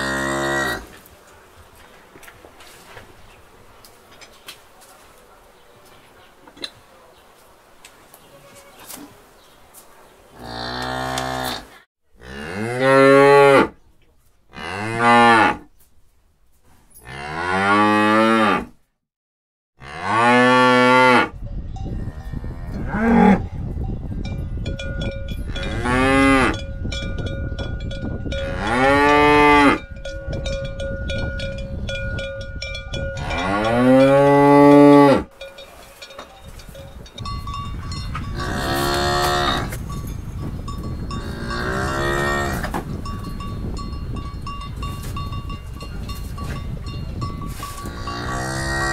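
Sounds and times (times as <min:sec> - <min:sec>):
cows mooing: 0:00.0 - 0:00.9, 0:10.4 - 0:13.7, 0:28.4 - 0:29.8, 0:33.2 - 0:35.3, 0:38.3 - 0:39.8, 0:41.2 - 0:42.7, 0:47.8 - 0:48.9.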